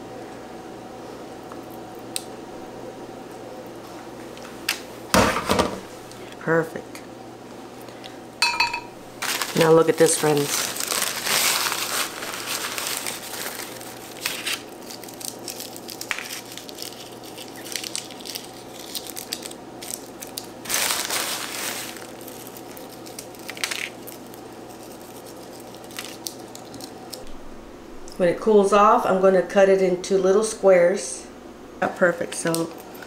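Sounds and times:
wrapping crinkling: 0:09.2 - 0:27.2.

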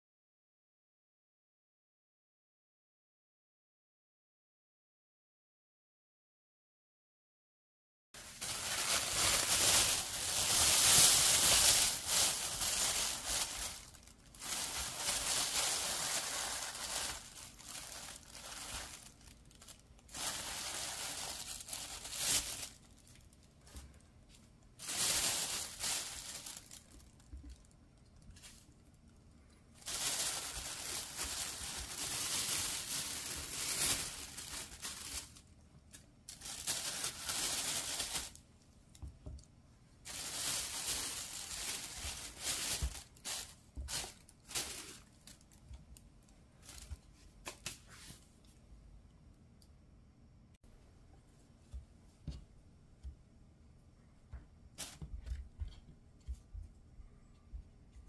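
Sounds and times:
plastic bag crinkling: 0:08.2 - 0:46.0, 0:46.6 - 0:47.8.

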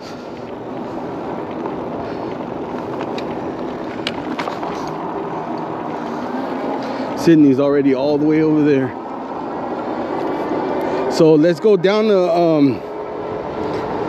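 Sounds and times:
tyres rumbling on asphalt: 0:00.0 - 0:14.0.

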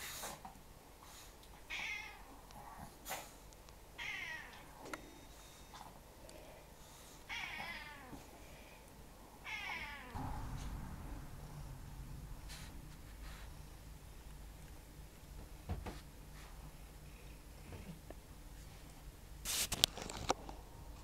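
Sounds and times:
cat meowing: 0:01.7 - 0:02.2, 0:04.0 - 0:04.7, 0:09.4 - 0:10.2.

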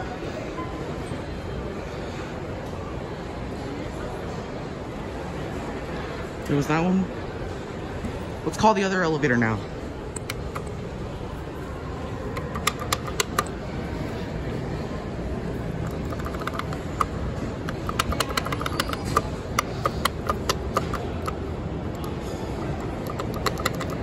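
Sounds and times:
steady background hum: 0:00.0 - 0:24.0
elevator button clicks: 0:12.4 - 0:13.5, 0:15.9 - 0:21.4, 0:22.8 - 0:24.0.

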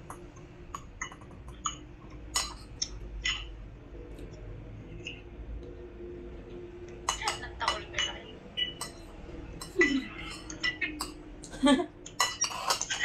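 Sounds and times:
cutlery clinking on ceramic dishes: 0:02.4 - 0:02.7, 0:07.1 - 0:11.2, 0:12.1 - 0:13.0.

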